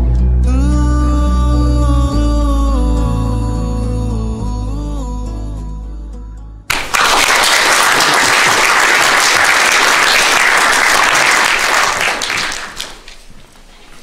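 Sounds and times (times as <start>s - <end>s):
audience applauding: 6.7s - 13.2s.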